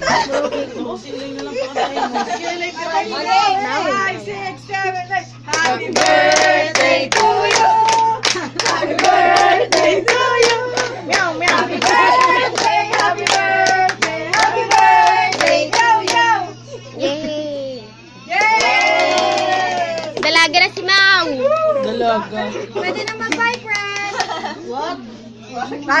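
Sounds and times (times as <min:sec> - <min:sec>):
people singing together: 0:05.2 - 0:16.8
people clapping: 0:05.5 - 0:16.4, 0:18.3 - 0:20.5, 0:23.0 - 0:24.5.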